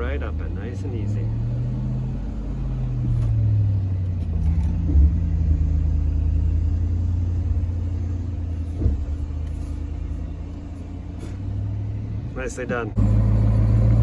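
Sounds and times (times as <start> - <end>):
truck engine running at low revs: 0.0 - 14.0
short thumps: 3.0 - 5.9, 7.4 - 11.6.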